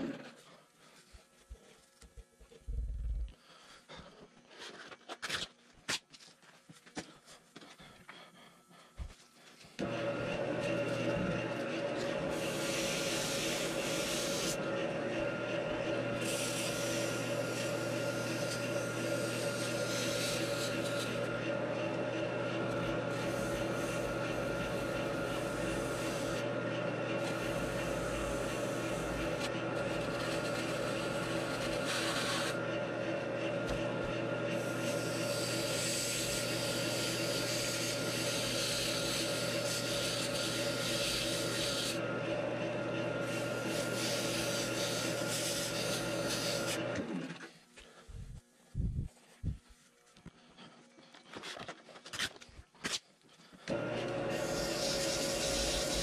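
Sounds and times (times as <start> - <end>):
wood lathe humming: 9.0 - 47.5, 53.7 - 56.0
sandpaper sanding hiss: 12.3 - 14.6, 16.2 - 21.2, 43.6 - 46.7, 54.3 - 56.0.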